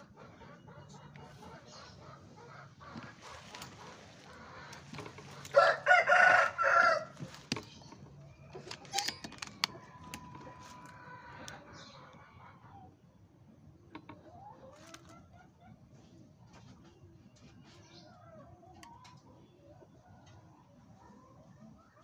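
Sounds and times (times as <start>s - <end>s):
rooster crowing: 5.4s - 7.2s.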